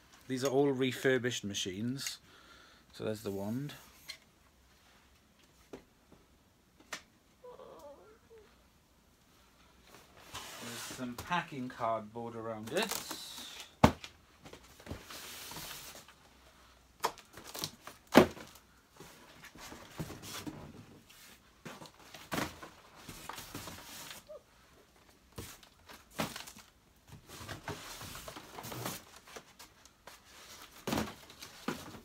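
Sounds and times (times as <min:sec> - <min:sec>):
cardboard scraping and rustling: 0:10.0 - 0:11.3, 0:25.4 - 0:32.0.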